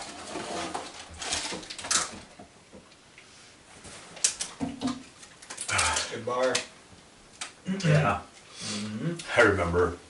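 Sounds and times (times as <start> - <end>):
wrapper rustling: 0.0 - 2.3.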